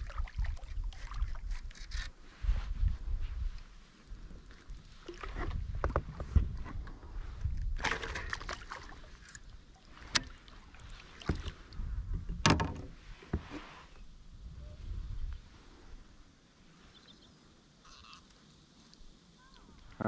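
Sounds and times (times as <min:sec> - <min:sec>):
knocks and scrapes against kayak hull: 0:04.5 - 0:14.0.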